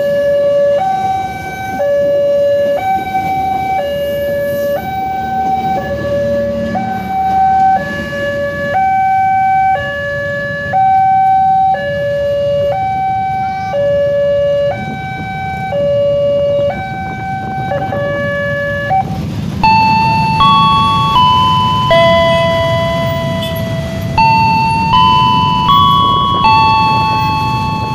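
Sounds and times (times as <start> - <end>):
two-tone crossing alarm: 0.0 - 27.9
stepped electronic tones: 19.6 - 27.9.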